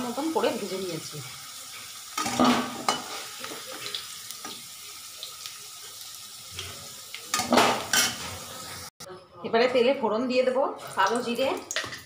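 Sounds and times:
potatoes sizzling in oil: 0.0 - 8.9.

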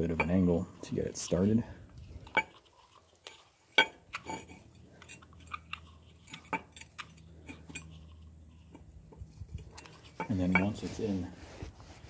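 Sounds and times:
parts clicking and tapping: 2.2 - 10.8.

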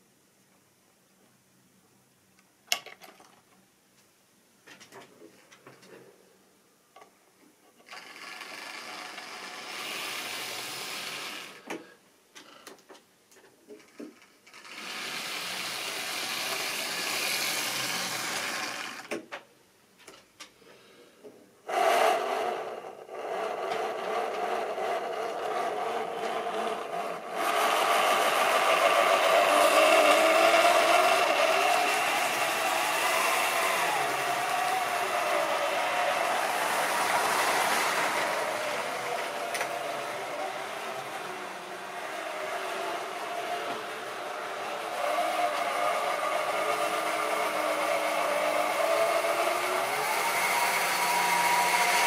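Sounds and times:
model train motor whining: 7.8 - 11.8, 13.8 - 19.2, 21.7 - 52.0
wheels rattling over rails: 7.9 - 11.6, 13.8 - 19.1, 21.9 - 52.0.

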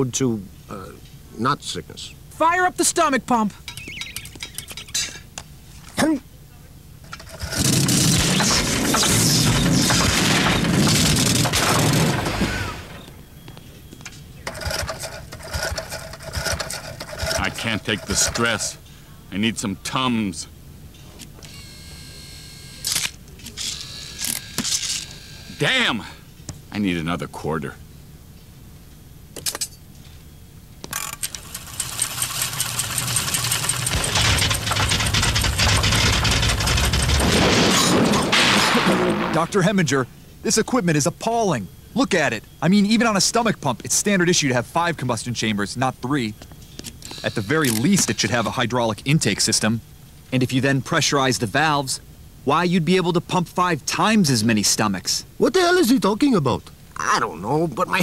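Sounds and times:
rattling knocking machine noise: 7.1 - 13.0, 14.4 - 18.7, 30.9 - 38.4
cartoon pump machine surges: 7.2 - 13.0.

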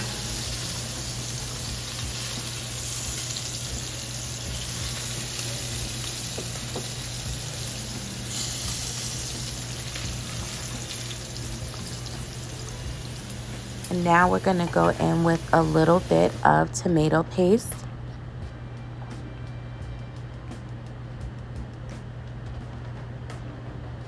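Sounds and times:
oil sizzling in a pot: 0.0 - 16.4.

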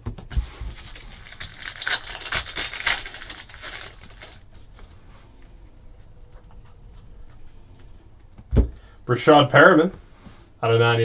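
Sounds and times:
foil wrapper crinkling: 0.3 - 5.0.

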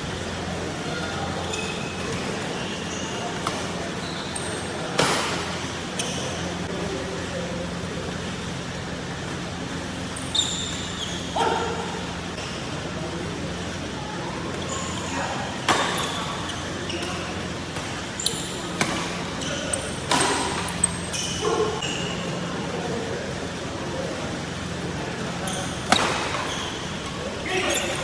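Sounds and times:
shoes squeaking on court: 1.3 - 6.6, 10.0 - 12.6, 14.5 - 22.5, 25.3 - 28.0.

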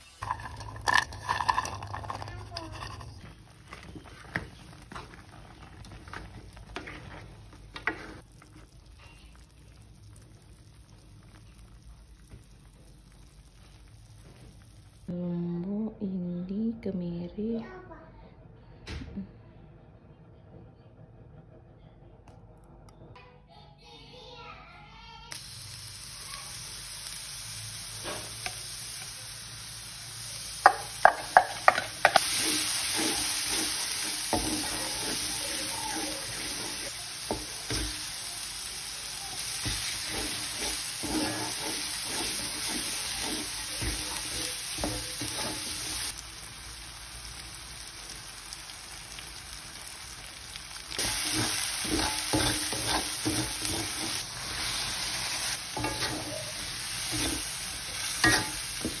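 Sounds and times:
spatula scraping and stirring: 0.0 - 9.5, 30.5 - 38.5, 39.4 - 46.2, 51.0 - 59.0
chili paste sizzling in a wok: 0.0 - 15.2, 25.3 - 59.0.

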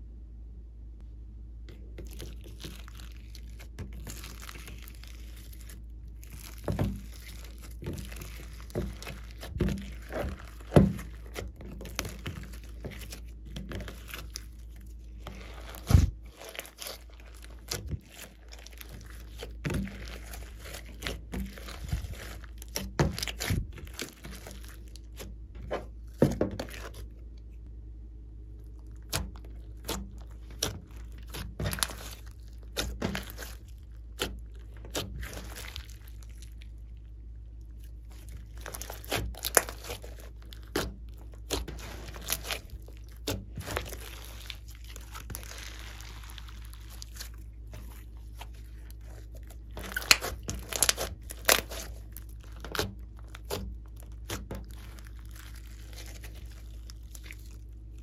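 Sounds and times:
faint low hum: 0.0 - 58.0
slime squelching: 1.7 - 58.0
air pockets popping in slime: 29.0 - 36.2, 38.4 - 57.4.

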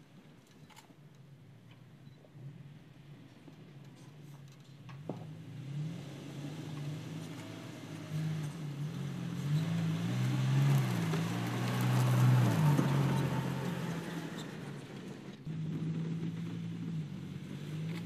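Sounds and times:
truck engine revving off-road: 5.0 - 18.0.

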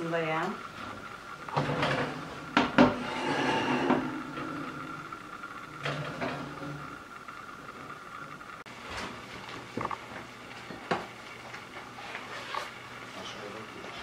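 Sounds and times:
baking tray scraping on oven rack: 0.6 - 8.0.

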